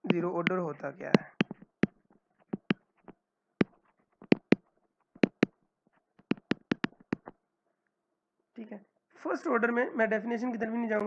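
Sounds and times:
pen tapping on digital whiteboard: 0.1s - 5.6s, 6.2s - 7.3s.

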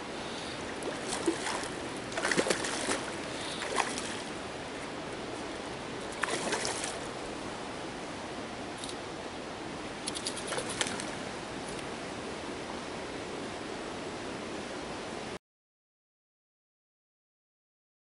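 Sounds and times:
steady background hiss: 0.0s - 15.4s
fish splashing at water surface: 0.8s - 4.3s, 6.2s - 7.1s.

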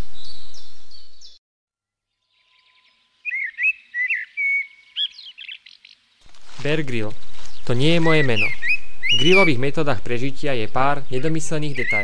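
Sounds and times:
faint bird twittering: 2.1s - 6.2s, 7.1s - 12.0s
songbird whistling song: 2.2s - 6.1s, 7.5s - 9.6s, 11.7s - 12.0s.

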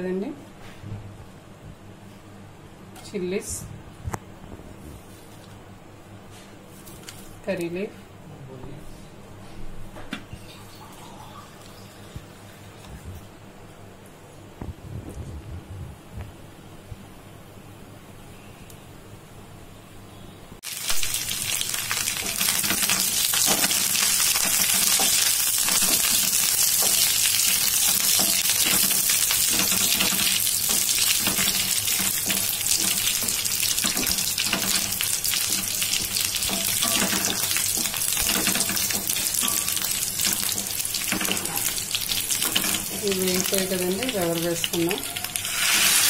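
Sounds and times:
chillies sizzling in hot oil: 20.6s - 46.0s.

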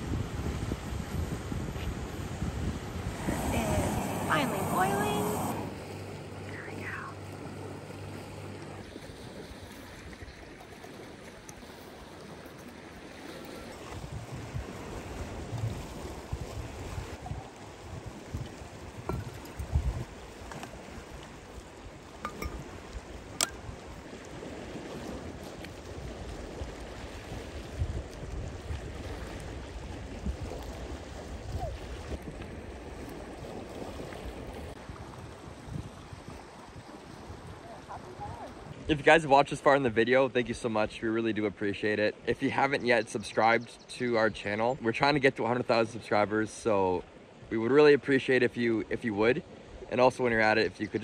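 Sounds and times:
wind: 0.0s - 51.0s
lapping water: 3.0s - 39.1s
camp stove humming: 22.1s - 23.7s.

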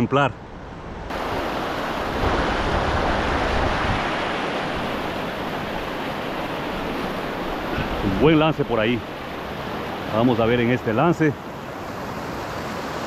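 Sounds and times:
wind rumbling on microphone: 0.4s - 10.1s
river water rushing: 1.0s - 13.0s.

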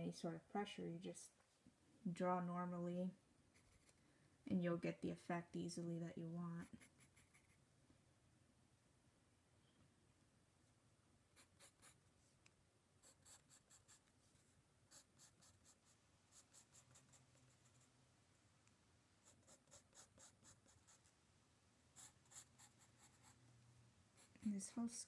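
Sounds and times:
pencil scratching on paper: 3.5s - 4.0s, 6.6s - 7.6s, 11.4s - 12.0s, 13.0s - 14.1s, 14.9s - 17.9s, 19.2s - 21.1s, 22.0s - 23.4s.

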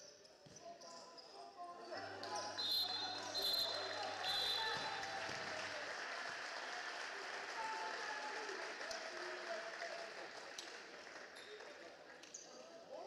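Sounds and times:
crowd applauding: 2.6s - 12.1s.

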